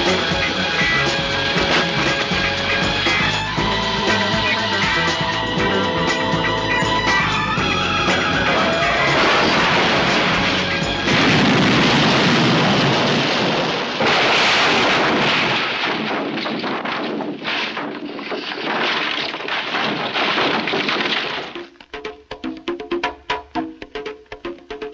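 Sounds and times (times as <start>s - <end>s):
loud roaring blast: 5.3s - 16.4s
crackle and spatter of debris: 8.5s - 21.9s.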